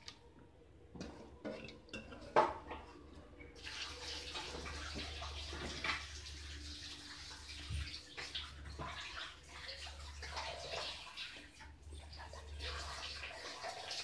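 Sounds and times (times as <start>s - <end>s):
water sloshing and splashing: 3.6s - 14.0s.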